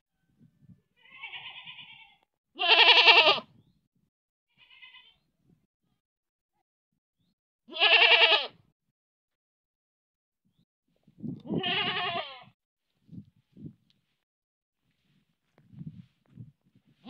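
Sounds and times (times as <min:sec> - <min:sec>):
goat bleating: 0:01.0 - 0:03.5, 0:04.5 - 0:05.2, 0:07.7 - 0:08.6, 0:11.4 - 0:12.6.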